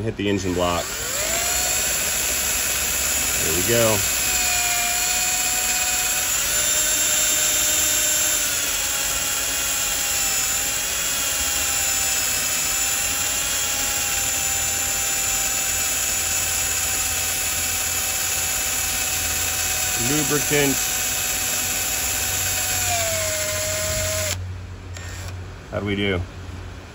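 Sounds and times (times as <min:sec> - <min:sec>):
electric drill whining: 0:00.4 - 0:24.4, 0:25.0 - 0:25.4.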